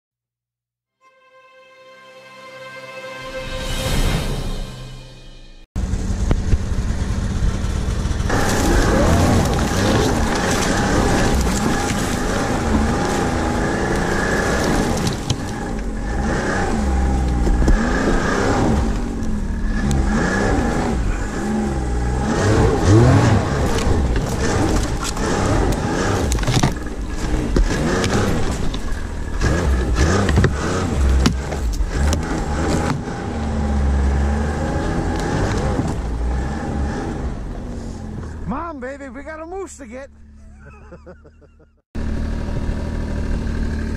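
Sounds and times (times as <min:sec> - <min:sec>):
high whine: 0:01.0 - 0:09.8
snowmobile engine revving: 0:05.8 - 0:43.9
branches scraping and snapping: 0:08.3 - 0:20.7, 0:21.9 - 0:33.1.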